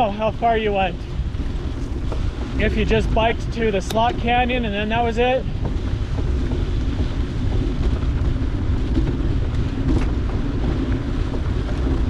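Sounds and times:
bicycle tyres on dirt road: 0.0s - 12.0s
wind rumbling on microphone: 0.0s - 12.0s.

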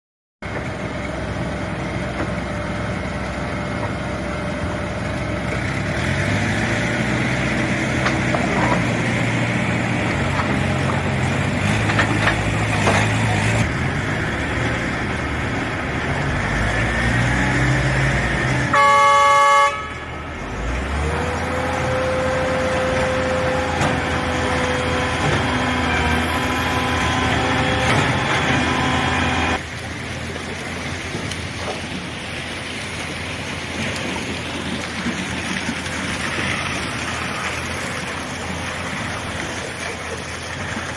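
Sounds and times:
concrete pump machinery running: 0.4s - 40.9s
horn: 18.6s - 20.1s.

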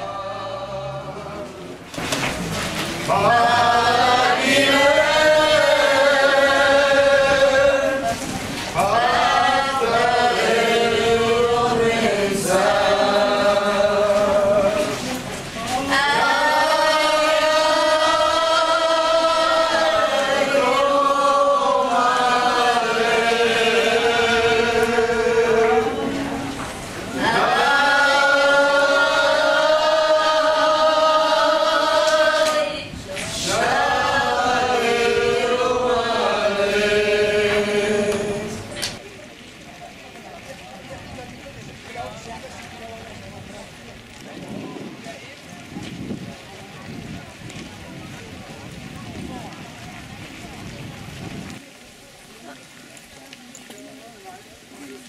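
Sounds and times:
crowd singing in unison: 0.0s - 39.0s.

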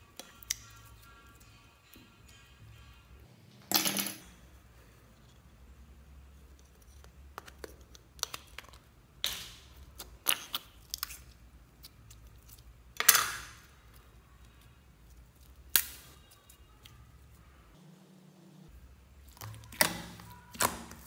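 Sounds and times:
slime sticky crackles: 19.2s - 21.0s.

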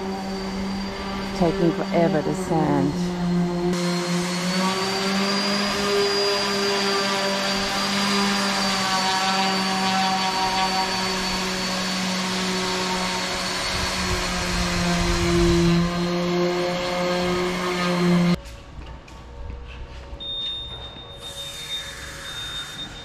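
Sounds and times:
power sander grinding: 0.0s - 18.4s.

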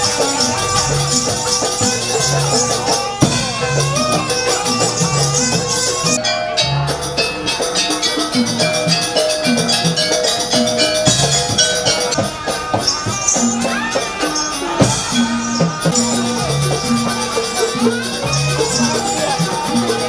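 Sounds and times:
rattling jingle: 0.0s - 20.0s
gong-chime notes: 6.1s - 19.9s.

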